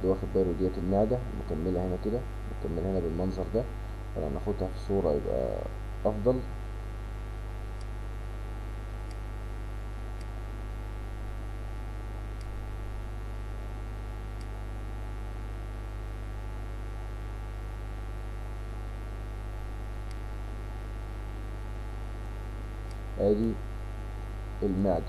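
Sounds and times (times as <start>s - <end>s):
electrical mains hum: 0.0s - 25.0s
faint mouse clicks: 12.4s - 12.6s, 14.4s - 14.6s.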